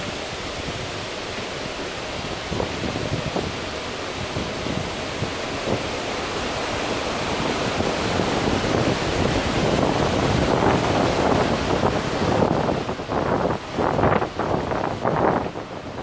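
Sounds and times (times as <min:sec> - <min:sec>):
sea wash: 0:00.0 - 0:16.0
wind rushing over microphone: 0:00.0 - 0:16.0.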